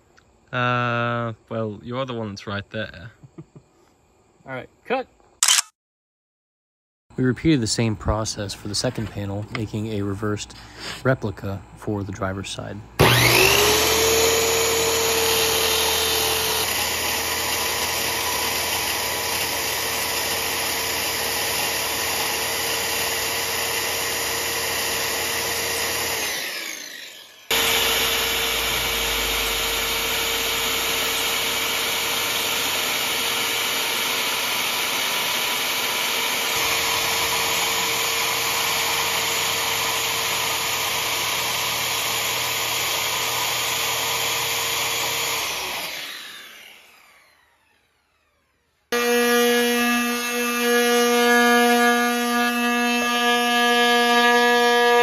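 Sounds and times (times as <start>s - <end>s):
circular saw cutting wood: 13.0s - 55.0s.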